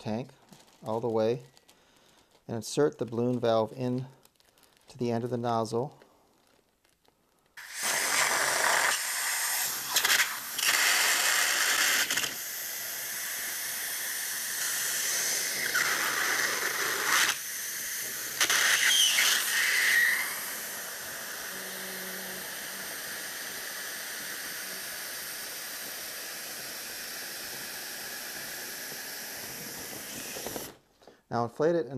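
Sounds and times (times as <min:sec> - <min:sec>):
helium hissing from tank nozzle: 0:07.6 - 0:30.8.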